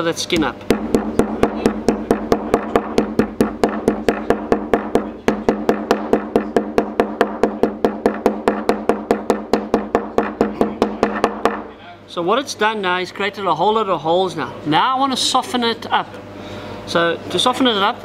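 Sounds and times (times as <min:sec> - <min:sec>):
hammer tapping squid on board: 0:00.7 - 0:11.7.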